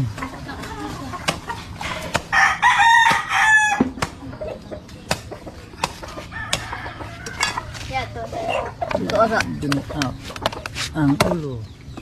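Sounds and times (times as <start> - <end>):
rooster crowing: 2.3 - 3.9, 6.2 - 7.9.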